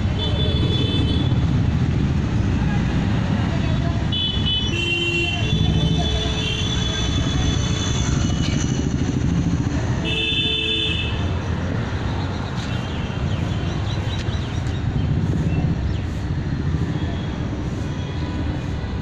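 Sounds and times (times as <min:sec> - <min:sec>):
vehicle engine rumbling: 0:00.0 - 0:19.0
car horn: 0:04.1 - 0:07.4, 0:10.0 - 0:11.2.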